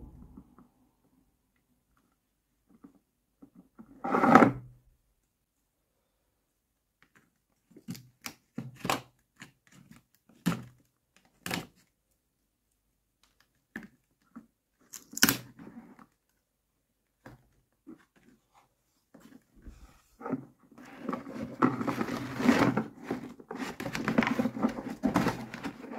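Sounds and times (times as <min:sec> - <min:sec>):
cardboard and tape tearing: 0:20.9 - 0:25.9.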